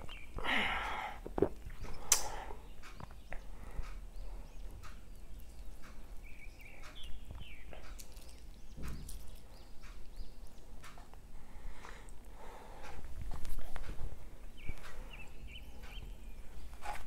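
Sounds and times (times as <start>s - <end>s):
chewing clicks and smacks: 1.2s - 11.2s.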